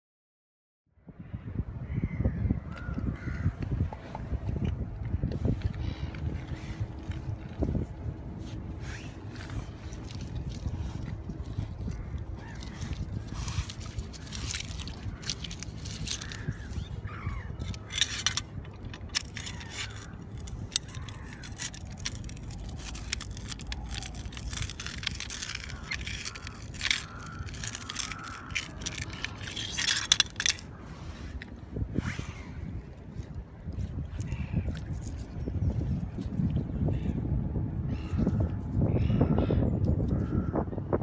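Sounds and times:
wet pebbles crunching underfoot: 4.5 - 31.8.

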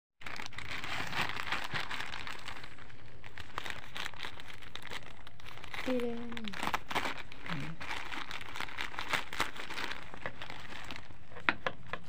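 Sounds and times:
plastic mailer crinkling: 0.2 - 12.0.

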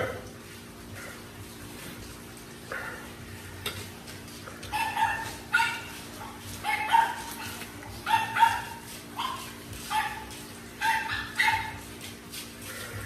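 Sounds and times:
dog yipping and whining: 4.7 - 11.9.

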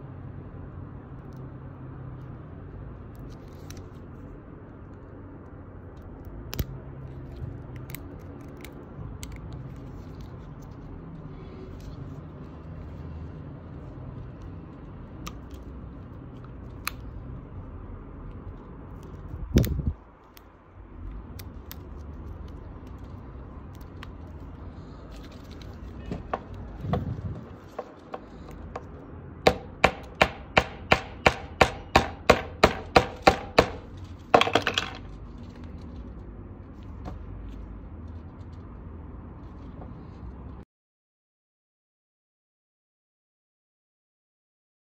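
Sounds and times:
screwdriver clicking and knocking: 29.5 - 35.0.

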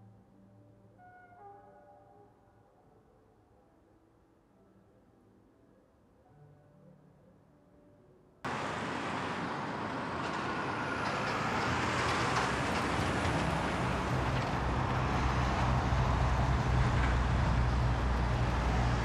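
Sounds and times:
heavy highway traffic: 8.5 - 19.0.

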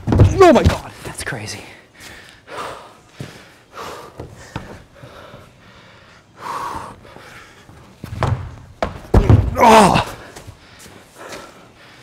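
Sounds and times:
person breathing hard: 1.9 - 7.9, 10.3 - 12.0.

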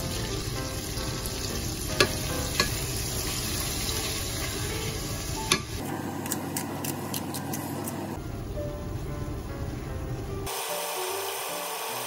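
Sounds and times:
chicken sizzling in oil: 0.0 - 5.8, 10.5 - 12.0.

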